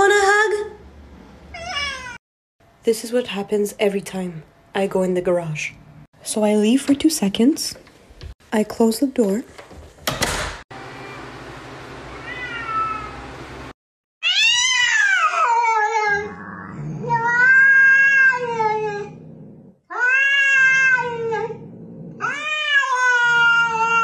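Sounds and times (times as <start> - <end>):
cat meowing: 1.5 - 2.2, 12.1 - 13.2, 14.2 - 16.4, 17.1 - 18.9, 19.9 - 21.4, 22.2 - 24.0.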